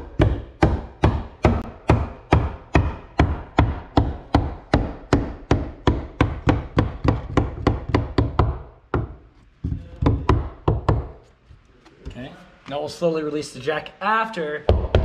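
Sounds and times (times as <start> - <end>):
hammer striking wood: 0.0 - 11.2, 14.7 - 15.0.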